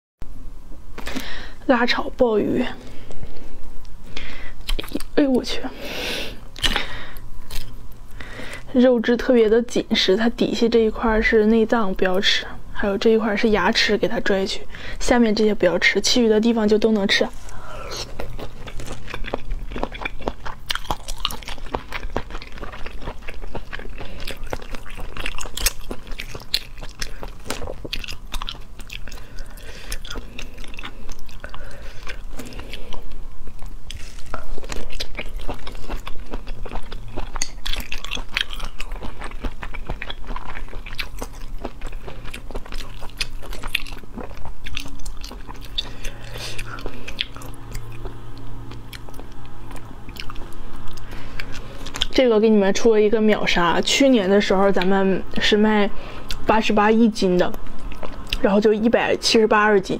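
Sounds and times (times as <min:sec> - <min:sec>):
close chewing and biting: 0:04.6 - 0:05.1, 0:17.2 - 0:52.2, 0:57.5 - 0:58.7.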